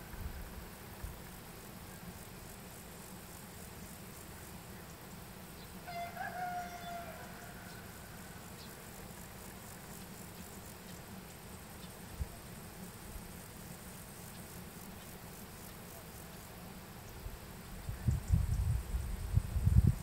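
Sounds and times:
rooster crowing: 0:05.8 - 0:08.2.

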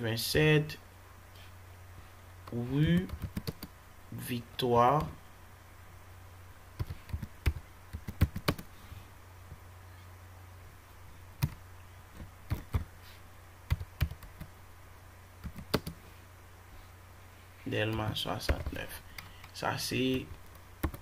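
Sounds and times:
faint low hum: 0:00.0 - 0:21.0.

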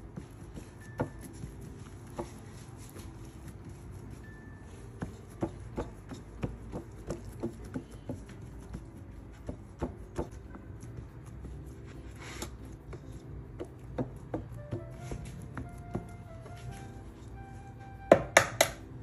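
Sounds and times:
fingers tapping dough on metal pan: 0:04.9 - 0:10.6, 0:12.4 - 0:16.2, 0:18.1 - 0:18.8.

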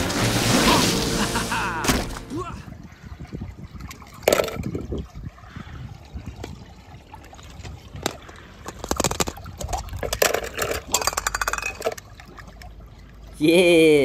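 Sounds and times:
water trickling and sloshing: 0:00.0 - 0:14.0
plastic toys clicking and knocking: 0:08.0 - 0:12.1.

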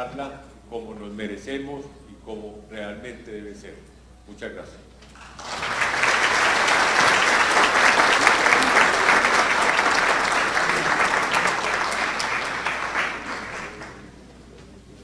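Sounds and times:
audience applauding: 0:05.2 - 0:14.2.

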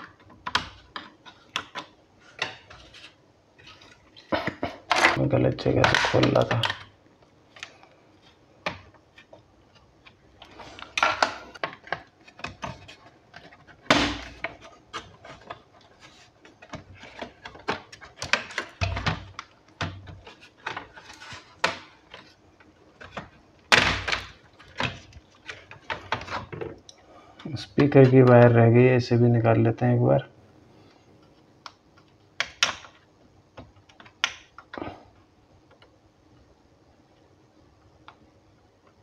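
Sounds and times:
plastic rubbing: 0:00.0 - 0:26.8.

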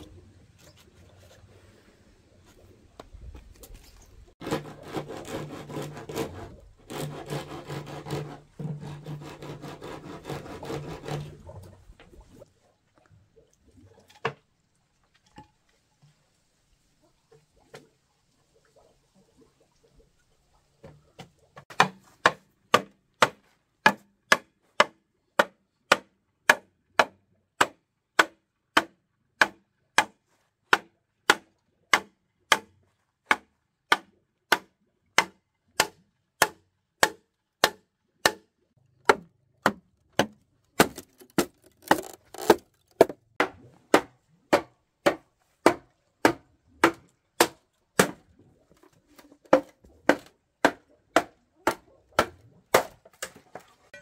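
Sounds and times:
wood being chopped: 0:21.7 - 0:30.1, 0:33.3 - 0:38.4, 0:39.1 - 0:48.2, 0:49.5 - 0:53.4.

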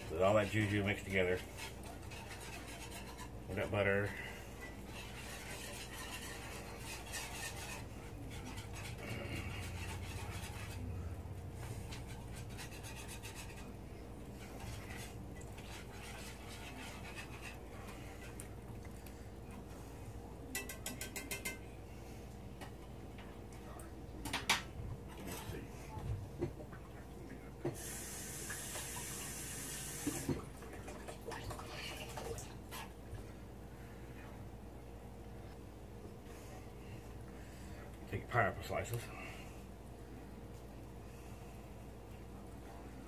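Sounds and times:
spoon scraping skillet: 0:00.0 - 0:11.0, 0:11.6 - 0:18.5.

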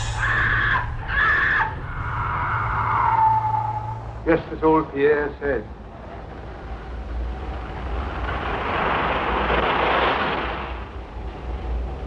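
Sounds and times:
rushing whooshing noise: 0:00.0 - 0:04.3
steady low rumble: 0:00.0 - 0:12.0.

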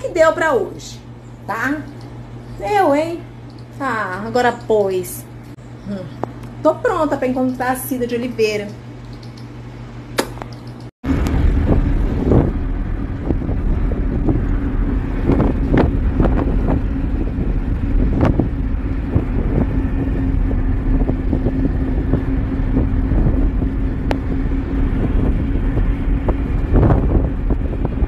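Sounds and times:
steady low hum: 0:00.0 - 0:28.0
wind rushing through car window: 0:11.0 - 0:28.0.

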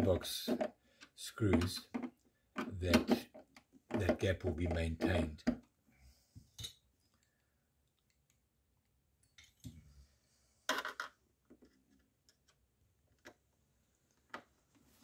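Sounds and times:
hands clicking and knocking inside hull: 0:00.0 - 0:05.7.

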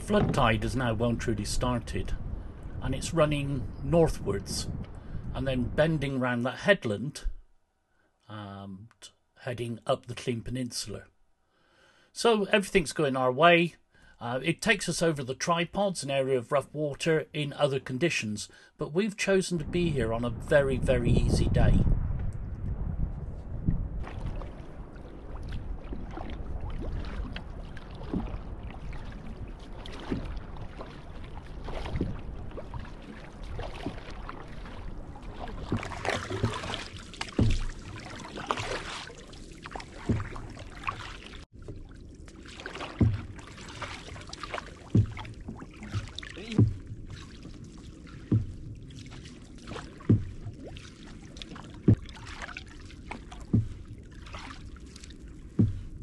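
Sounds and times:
paddles splashing in water: 0:00.0 - 0:01.7, 0:23.7 - 0:56.0
water rippling along hull: 0:00.0 - 0:08.2, 0:17.0 - 0:56.0.

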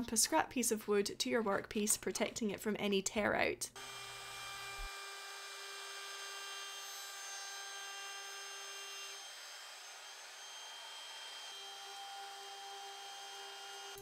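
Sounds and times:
router whining through wood: 0:03.8 - 0:14.0.

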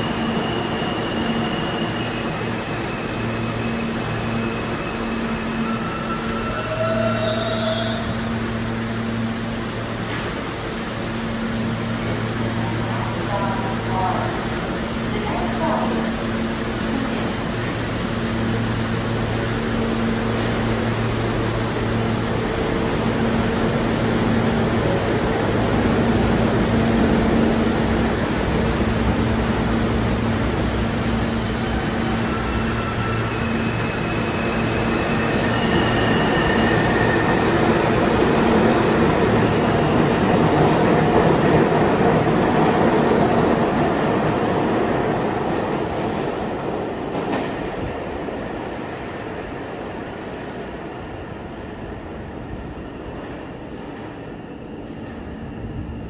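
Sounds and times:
train wheels rumbling on rail: 0:00.0 - 0:56.0
high-pitched wheel squeals: 0:00.2 - 0:08.2, 0:49.9 - 0:51.2.

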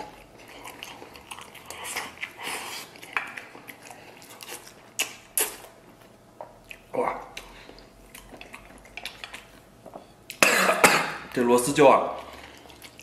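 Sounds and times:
man chewing food: 0:00.0 - 0:13.0
sharp mouth clicks: 0:05.0 - 0:05.7.

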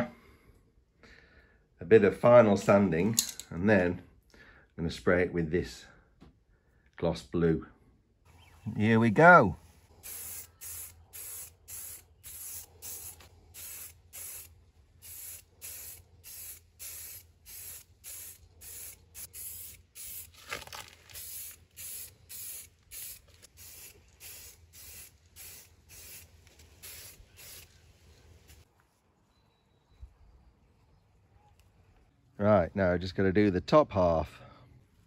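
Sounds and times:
spray can hissing: 0:10.0 - 0:20.4, 0:21.1 - 0:27.8.

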